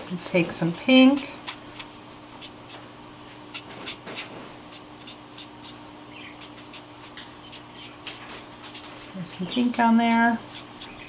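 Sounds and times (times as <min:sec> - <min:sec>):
faint steady hum: 0:00.0 - 0:11.0
felt tip strokes on paper: 0:06.4 - 0:11.0.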